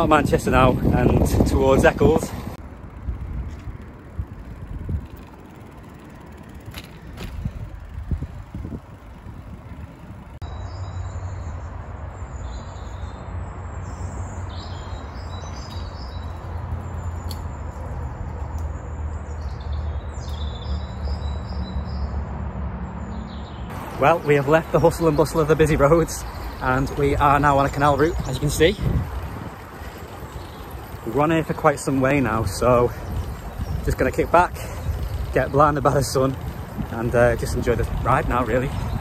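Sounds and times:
bicycle riding rumble: 0:00.0 - 0:39.0
birds chirping: 0:00.0 - 0:39.0.

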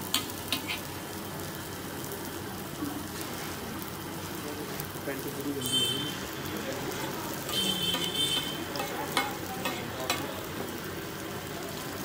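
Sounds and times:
food sizzling on a griddle: 0:00.0 - 0:12.0
metal spatula scraping a griddle: 0:00.1 - 0:00.9, 0:07.0 - 0:10.3.

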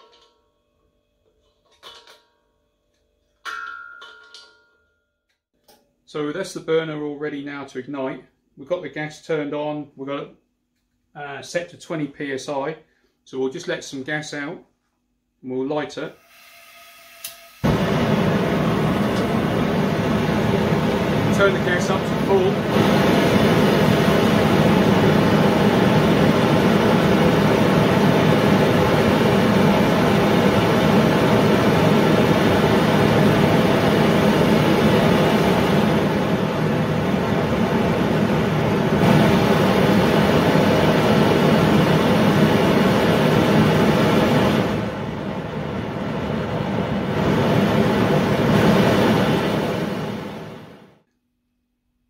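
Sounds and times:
gas burner roaring: 0:17.1 - 0:51.0.

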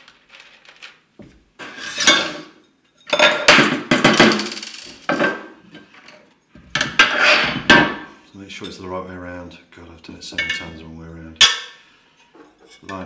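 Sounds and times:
small screws rattling: 0:00.0 - 0:01.0.

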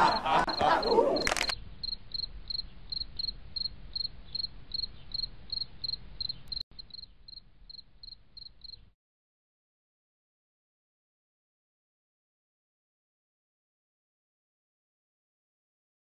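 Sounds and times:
cricket chirping: 0:00.0 - 0:08.9.

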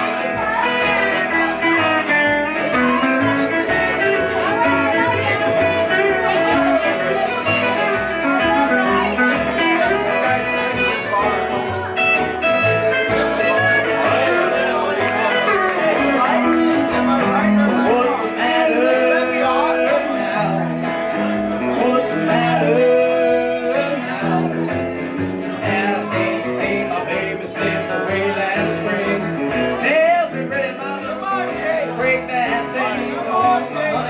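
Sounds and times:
electric guitar: 0:00.0 - 0:34.0
upright bass: 0:00.0 - 0:34.0
person singing: 0:17.3 - 0:24.8, 0:25.5 - 0:34.0.

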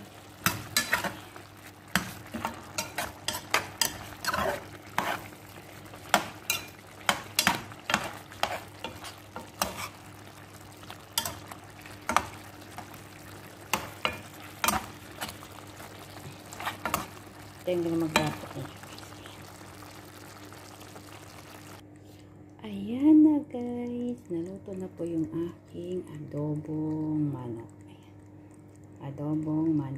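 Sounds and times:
sauce sizzling: 0:00.0 - 0:21.8
metal spoon scraping a pan: 0:00.4 - 0:05.4, 0:06.1 - 0:10.1.

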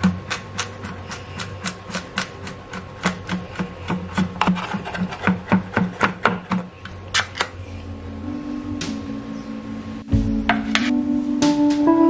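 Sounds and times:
knife chopping on wooden board: 0:00.0 - 0:06.7.

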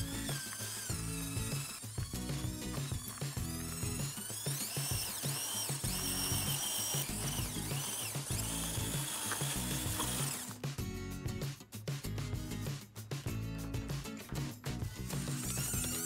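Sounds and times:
wheels spinning in gravel: 0:00.0 - 0:10.5
toy tractor motor whining: 0:00.0 - 0:10.6, 0:14.9 - 0:16.0
background music with steady beat: 0:00.0 - 0:16.0.

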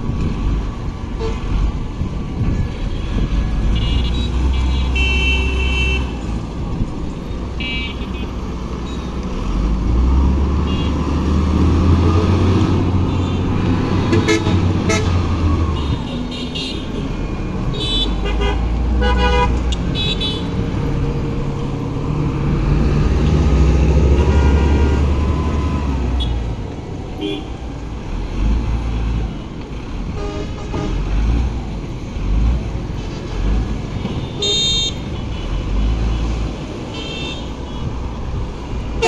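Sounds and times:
vehicles passing: 0:00.0 - 0:39.0
car horns tooting: 0:02.6 - 0:06.2, 0:07.6 - 0:09.1, 0:13.0 - 0:15.2, 0:17.7 - 0:20.5, 0:24.0 - 0:25.2, 0:34.0 - 0:35.6.

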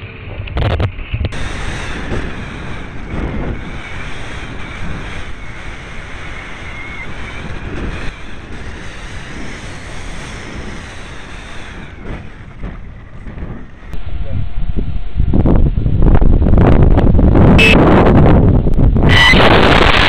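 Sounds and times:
wind buffeting microphone: 0:00.0 - 0:20.0
faint wavering whine: 0:13.8 - 0:16.2.

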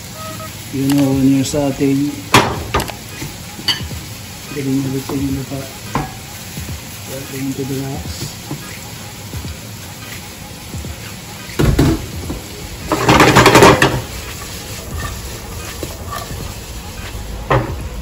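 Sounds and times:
vegetables sizzling in pan: 0:00.0 - 0:18.0
pan shaking rattle: 0:12.9 - 0:16.5.

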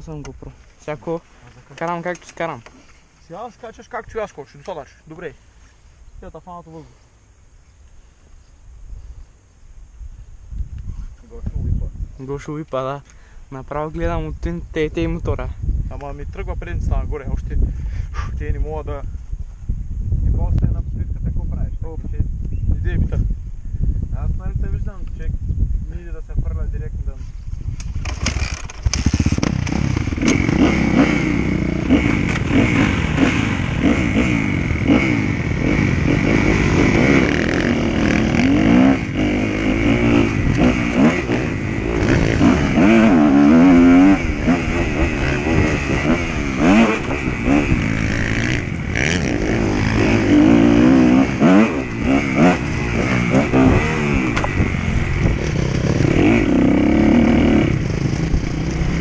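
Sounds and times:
dirt bike engine revving: 0:27.8 - 0:59.0.

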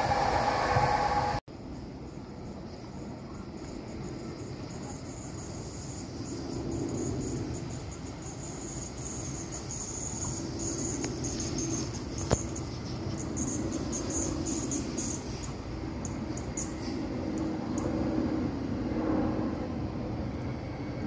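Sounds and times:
cicadas singing: 0:02.1 - 0:17.8.

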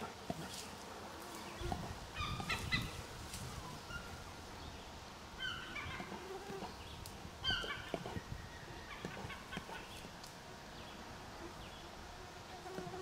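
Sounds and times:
bear rustling through undergrowth: 0:00.0 - 0:04.6.

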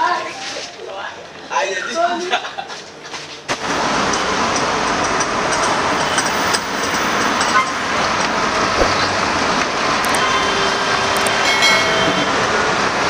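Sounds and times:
cars passing close by: 0:03.6 - 0:13.0.

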